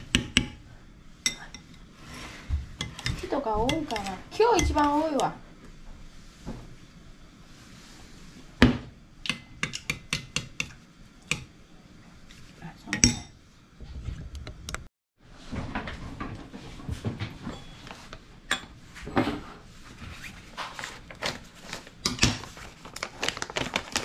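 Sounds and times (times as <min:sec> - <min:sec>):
rustling of things handled: 0:18.9 - 0:24.0.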